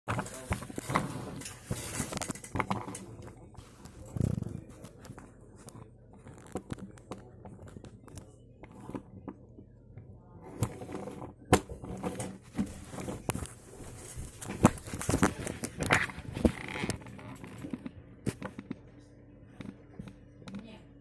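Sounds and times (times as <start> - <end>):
rubbing and rustling: 11.8 - 17.8.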